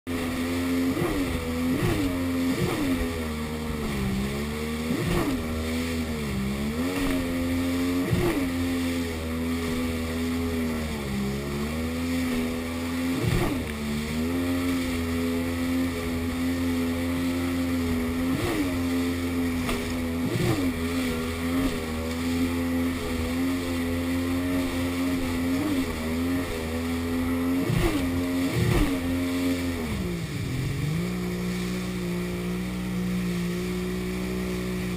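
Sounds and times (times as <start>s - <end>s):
jet ski engine running: 0.0s - 34.9s
jet ski hull thumping: 19.4s - 20.9s.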